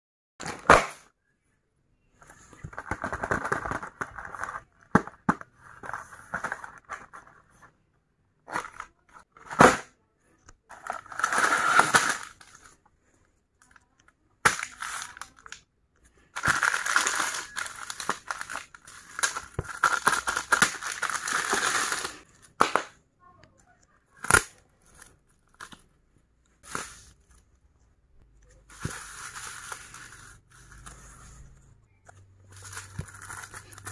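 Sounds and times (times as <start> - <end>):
snack wrappers crinkling and tearing: 16.3 - 22.6, 32.5 - 33.9.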